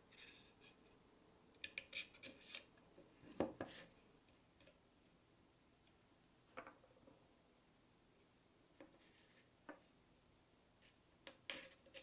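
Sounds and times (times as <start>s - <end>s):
wooden piece being handled: 6.5s - 7.2s.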